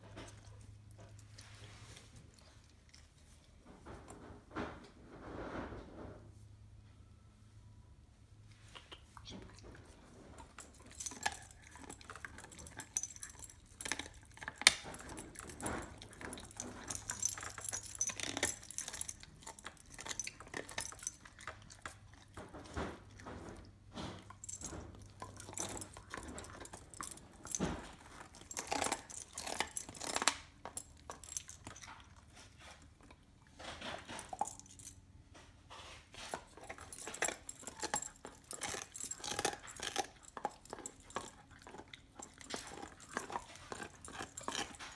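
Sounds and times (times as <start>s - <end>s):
dog gnawing a bone: 9.4s - 34.8s, 36.1s - 44.9s.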